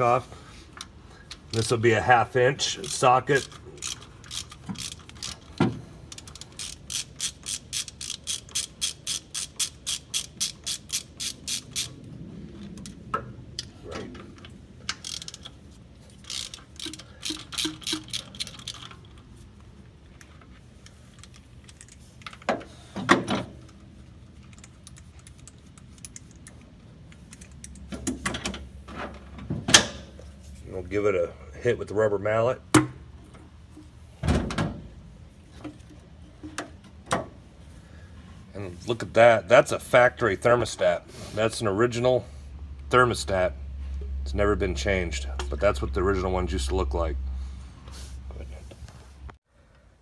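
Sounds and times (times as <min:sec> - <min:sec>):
socket ratchet clicking: 0:02.8 - 0:12.0, 0:14.9 - 0:15.6, 0:16.2 - 0:19.2.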